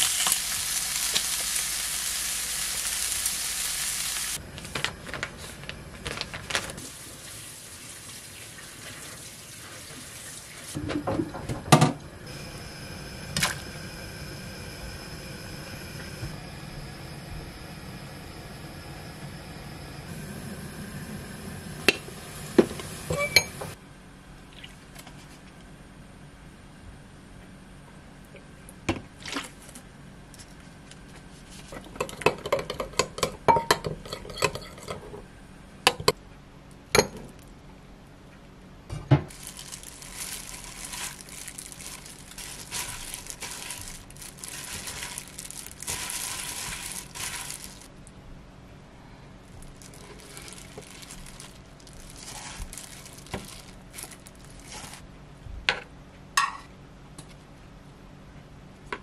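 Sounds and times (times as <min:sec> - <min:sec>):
gloved hand rustling noodles: 0:39.3 - 0:47.9, 0:49.6 - 0:55.1.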